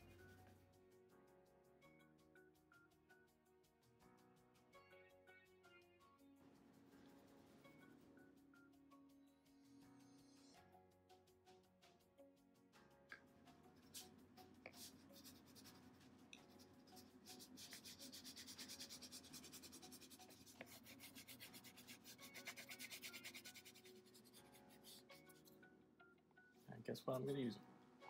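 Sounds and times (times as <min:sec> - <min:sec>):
crayon scribbling on paper: 0:13.8 - 0:25.6.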